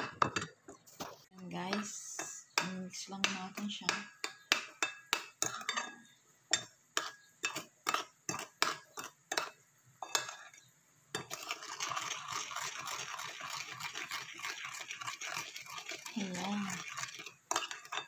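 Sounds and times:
spoon clinking on a plate: 0:04.2 - 0:11.4
spoon scraping a plate: 0:04.8 - 0:18.0.

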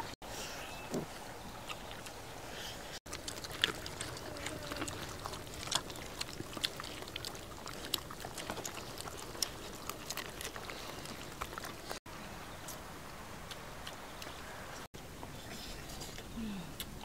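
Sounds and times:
dogs chewing and crunching: 0:00.9 - 0:17.0.

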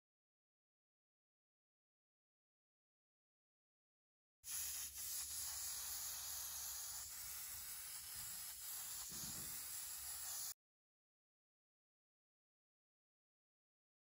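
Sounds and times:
airbrush hissing: 0:04.4 - 0:10.6.

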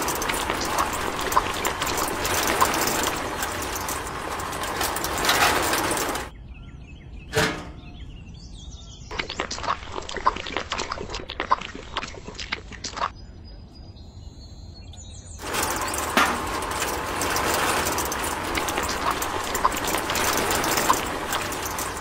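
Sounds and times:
cement scraping clicks: 0:00.0 - 0:06.3, 0:07.3 - 0:07.9, 0:15.4 - 0:22.0
wet cement pouring: 0:00.0 - 0:06.3, 0:09.1 - 0:13.1, 0:15.4 - 0:22.0
faint bird chirps: 0:13.0 - 0:15.4.

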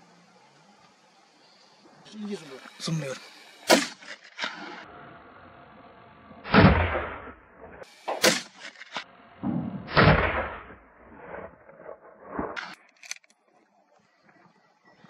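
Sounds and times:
sharp short gunshot crack: 0:03.6 - 0:04.8, 0:06.4 - 0:07.4, 0:08.1 - 0:10.8
heavy gunshots with echo: 0:03.7 - 0:04.0, 0:06.4 - 0:07.4, 0:08.1 - 0:08.6, 0:09.4 - 0:10.8.

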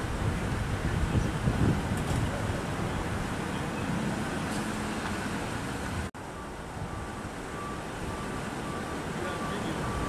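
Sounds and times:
roadside traffic rumble: 0:00.0 - 0:10.0
faint high beep: 0:06.3 - 0:10.0.

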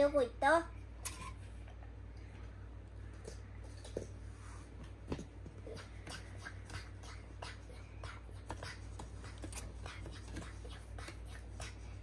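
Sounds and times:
low steady hum: 0:00.0 - 0:12.0
cardboard puppets tapping and rustling: 0:05.0 - 0:11.8.

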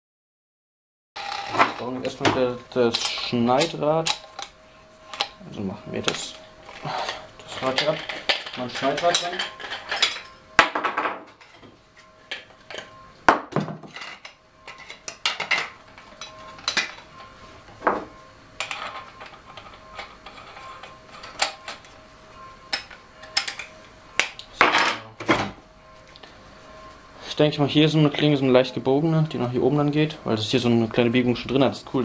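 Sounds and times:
metallic clinks and knocks: 0:06.7 - 0:11.7, 0:13.6 - 0:17.3.

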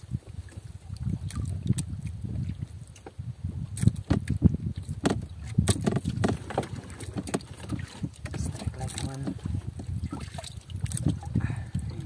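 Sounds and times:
water slapping boat hull: 0:00.0 - 0:12.0
sharp knocks: 0:05.0 - 0:07.9.

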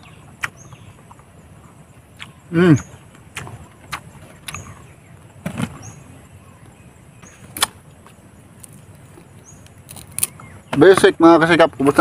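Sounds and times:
chewing crisp crunches: 0:00.0 - 0:05.8, 0:07.3 - 0:10.6.

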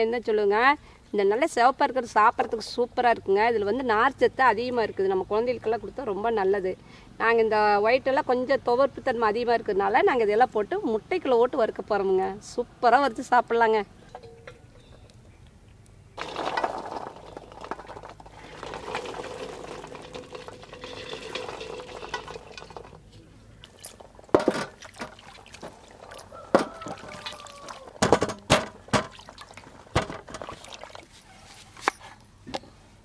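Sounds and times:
rustling pouring noise: 0:16.2 - 0:28.0.

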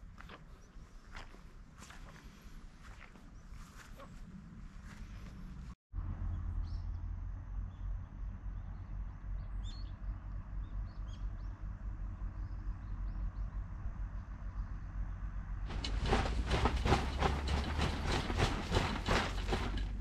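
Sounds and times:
low wind rumble: 0:11.6 - 0:20.0
rhythmic rustling: 0:15.7 - 0:20.0.

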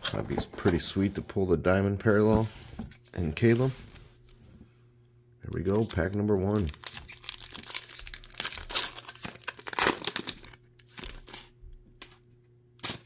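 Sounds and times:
foil wrapper tearing and crinkling: 0:05.6 - 0:12.2, 0:12.8 - 0:13.0.

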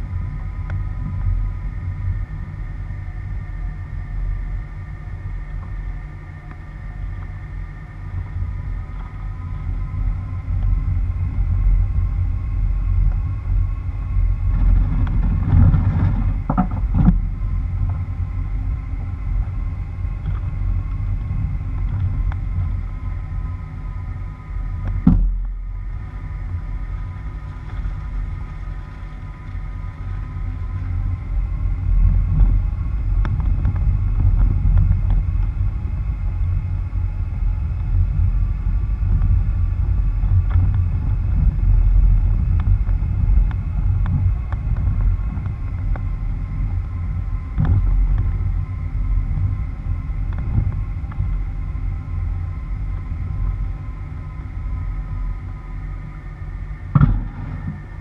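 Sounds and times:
tyres rumbling on dirt road: 0:56.9 - 0:58.0
knocks from bumps: 0:57.0 - 0:57.8.

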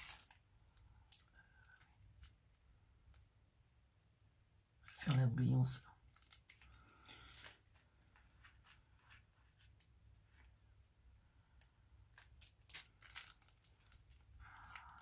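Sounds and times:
paper rustling: 0:06.1 - 0:10.6.

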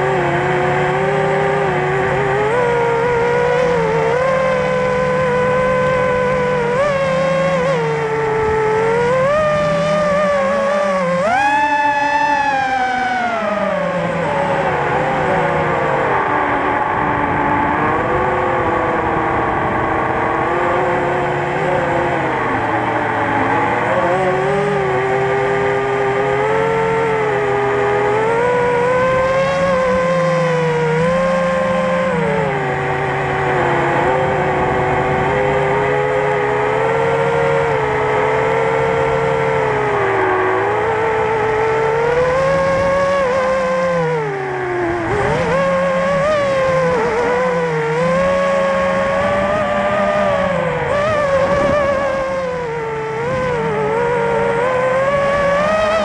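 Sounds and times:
drone motors and propellers whining: 0:00.0 - 0:56.0.

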